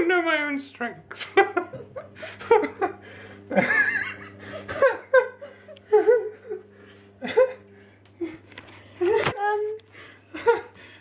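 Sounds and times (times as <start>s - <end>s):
low steady hum: 0.0s - 11.0s
person laughing: 1.2s - 9.3s, 10.2s - 10.8s.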